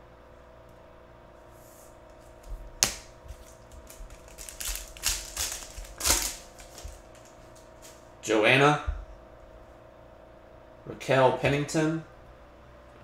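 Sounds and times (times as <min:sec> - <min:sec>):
foil wrapper tearing and crinkling: 0:02.8 - 0:08.0.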